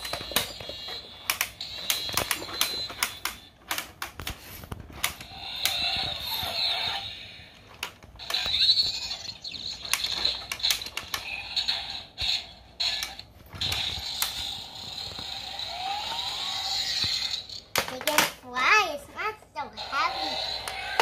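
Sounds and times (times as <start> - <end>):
plastic toy parts clicking: 0.0 - 4.4, 9.7 - 11.3.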